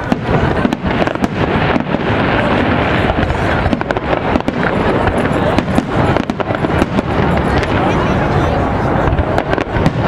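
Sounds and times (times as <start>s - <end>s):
fireworks bursting: 0.0s - 10.0s.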